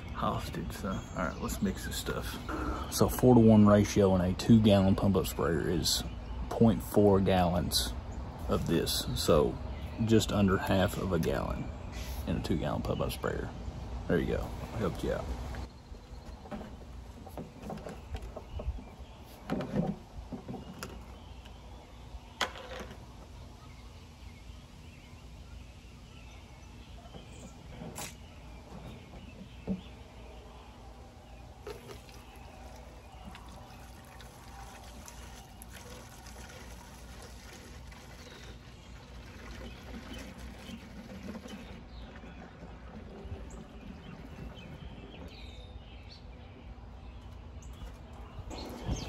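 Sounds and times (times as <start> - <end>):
liquid pouring into plastic cup: 31.6 - 44.4.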